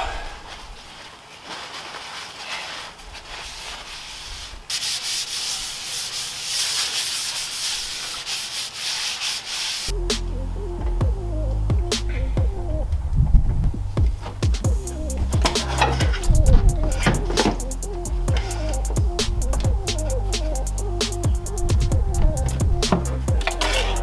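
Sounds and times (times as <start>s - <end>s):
paper towel scrubbing concrete: 0.5s - 9.9s
background music with bass line: 9.9s - 24.0s.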